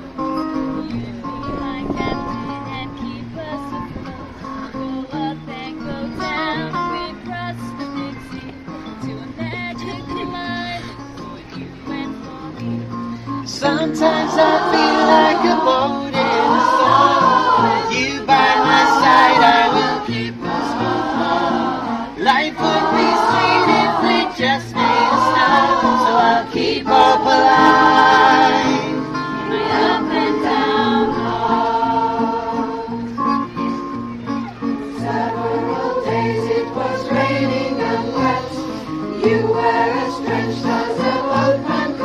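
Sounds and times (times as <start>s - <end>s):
acoustic guitar: 0.0s - 42.0s
choir singing: 13.4s - 33.6s, 34.6s - 42.0s.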